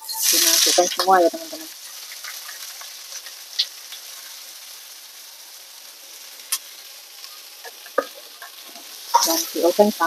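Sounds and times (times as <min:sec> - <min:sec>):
onions sizzling in hot oil: 0:00.0 - 0:10.0.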